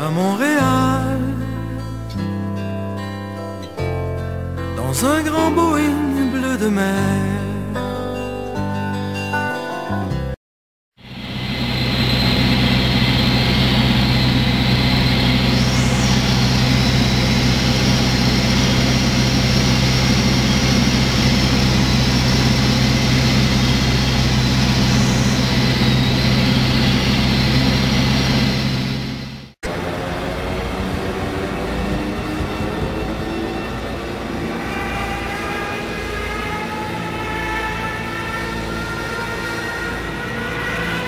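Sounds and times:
aircraft engine drone: 11.0 - 41.0.

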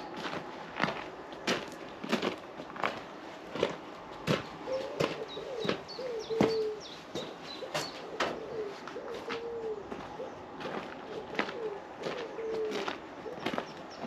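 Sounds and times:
footsteps crunching on gravel: 0.0 - 14.0
pigeon cooing: 4.5 - 14.0.

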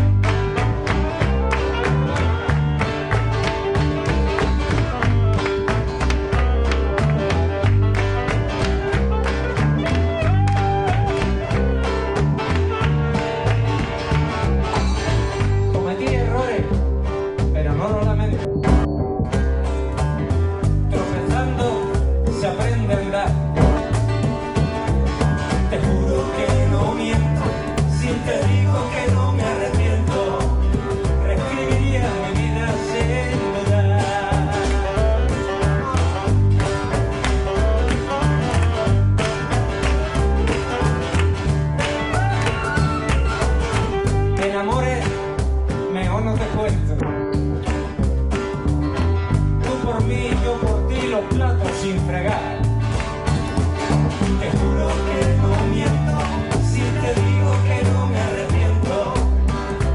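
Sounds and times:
double bass: 0.0 - 59.9
guitars strummed: 0.0 - 59.9
saxophone melody: 1.0 - 15.1, 34.8 - 44.6.

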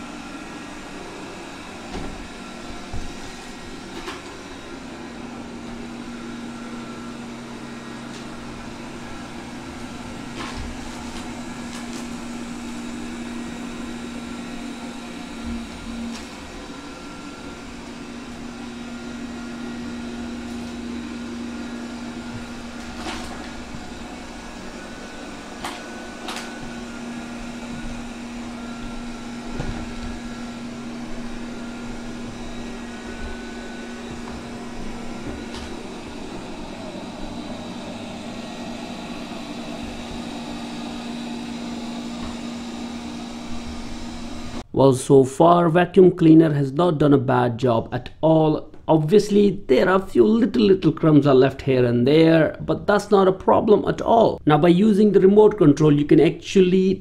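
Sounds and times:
robot vacuum motor hum: 0.0 - 44.6.

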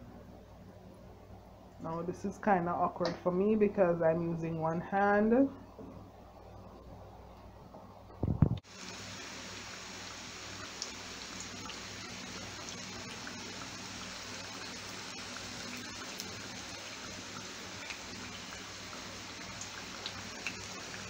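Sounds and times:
fritters sizzling in hot oil: 8.5 - 21.0.

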